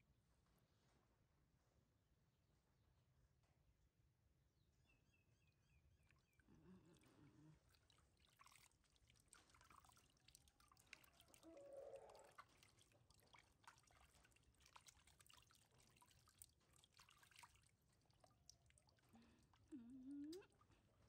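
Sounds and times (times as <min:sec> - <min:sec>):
water dripping and splashing: 0:07.6 - 0:21.0.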